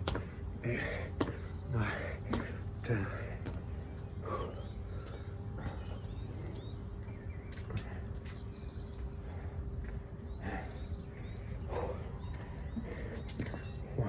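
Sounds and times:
birds chirping and trilling: 0:00.0 - 0:14.0
person panting heavily: 0:00.1 - 0:03.6, 0:04.2 - 0:06.8, 0:09.1 - 0:14.0.

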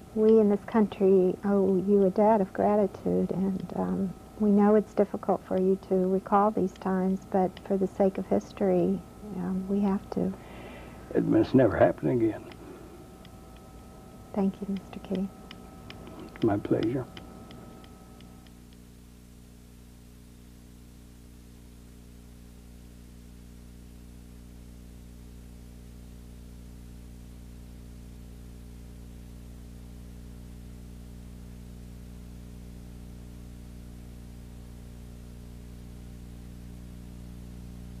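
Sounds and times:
steady hiss: 0:00.0 - 0:19.4
low electrical hum: 0:00.0 - 0:38.0.

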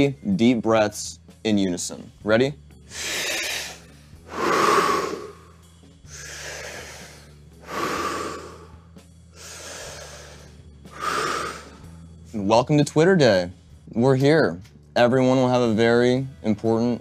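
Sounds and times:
people breathing deeply: 0:02.9 - 0:12.2.

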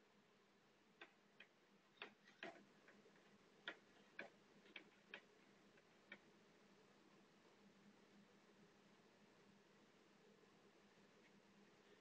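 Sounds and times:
faint low hum: 0:00.0 - 0:12.0
faint clicks: 0:00.9 - 0:06.4.

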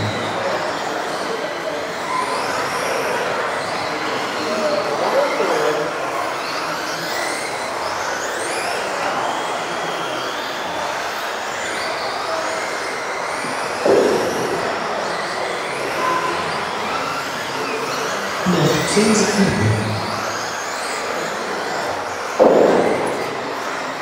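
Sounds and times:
rc car motors whining: 0:00.0 - 0:24.0
sharp knock: 0:22.4 - 0:23.3.

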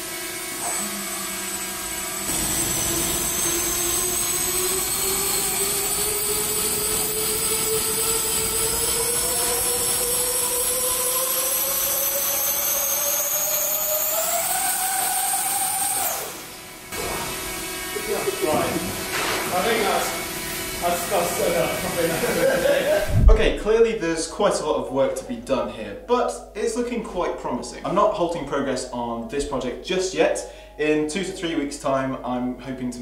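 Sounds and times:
electric fans whining: 0:00.0 - 0:24.3.

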